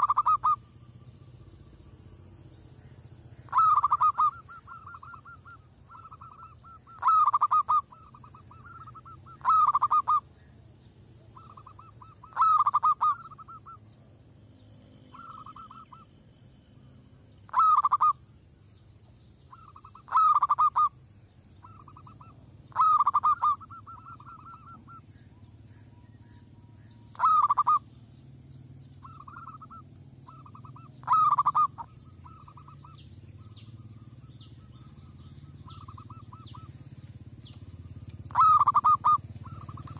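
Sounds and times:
dove cooing: 0:00.0 - 0:01.0, 0:02.8 - 0:10.3, 0:11.2 - 0:13.8, 0:15.1 - 0:16.1, 0:17.5 - 0:18.2, 0:19.5 - 0:21.0, 0:21.6 - 0:25.1, 0:27.1 - 0:27.9, 0:29.0 - 0:39.9.

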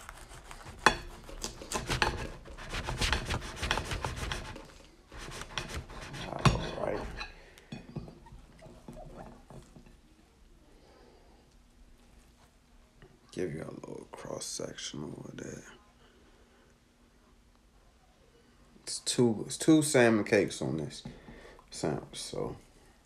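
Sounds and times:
knife sawing through sandwich: 0:00.0 - 0:07.1.

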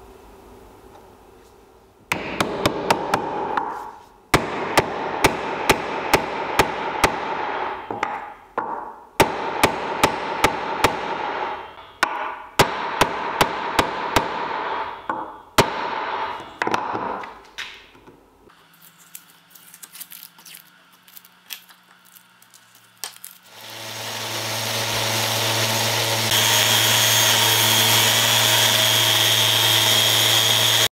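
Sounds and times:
hammer striking wooden block: 0:02.1 - 0:17.2.

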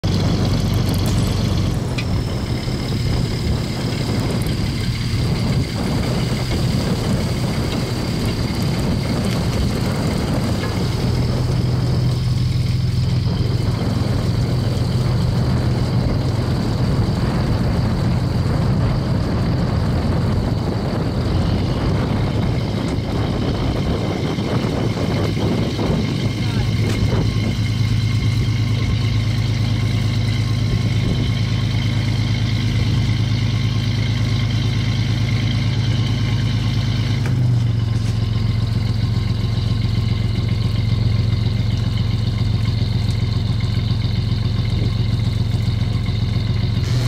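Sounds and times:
sea wash: 0:00.0 - 0:33.5
boat engine running: 0:00.0 - 0:47.0
high machinery whine: 0:00.0 - 0:47.0.

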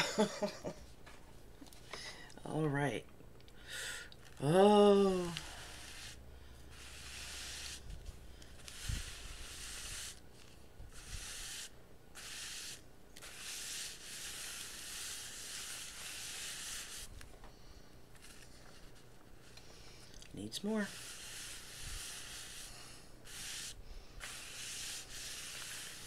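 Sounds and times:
iron rubbing over paper: 0:04.4 - 0:17.2, 0:20.8 - 0:26.0.

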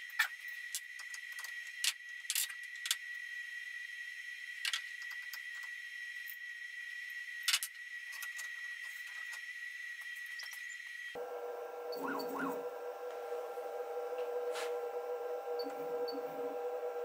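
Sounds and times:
high-pitched whine: 0:08.6 - 0:17.0.

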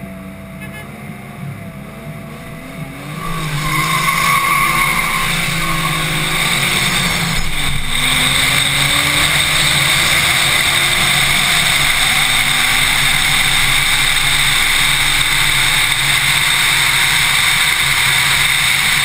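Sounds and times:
race car engine running: 0:01.3 - 0:19.0
rushing wind noise: 0:02.4 - 0:19.0.

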